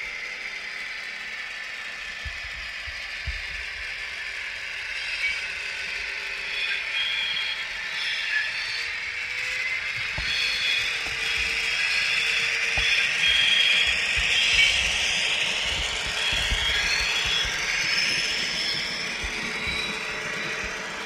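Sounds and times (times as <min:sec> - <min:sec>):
model train diesel engine sound: 0:00.0 - 0:21.0
wheels knocking over points: 0:10.0 - 0:21.0.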